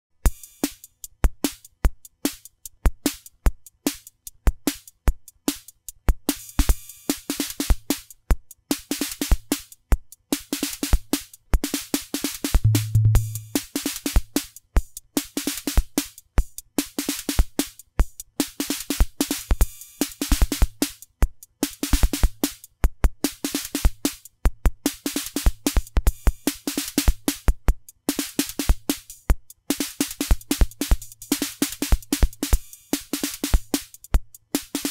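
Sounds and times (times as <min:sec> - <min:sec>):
hissing hi-hat and cymbals: 0:00.3 - 0:08.2, 0:10.4 - 0:34.9
drum machine beat: 0:12.5 - 0:13.7, 0:21.9 - 0:34.9.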